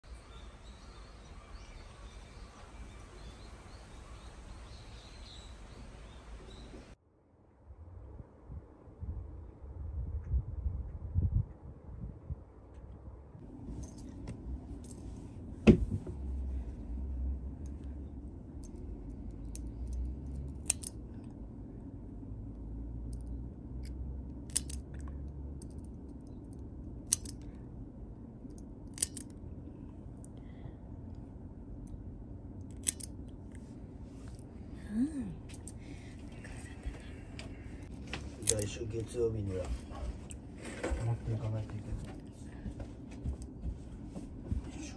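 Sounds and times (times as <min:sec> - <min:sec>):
small birds chirping: 0:00.1 - 0:07.0
low steady rumble: 0:00.1 - 0:44.9
nail clippers clipping claws: 0:19.4 - 0:21.0, 0:23.1 - 0:25.9, 0:27.0 - 0:27.5, 0:28.5 - 0:29.4, 0:32.6 - 0:33.2, 0:38.4 - 0:38.8.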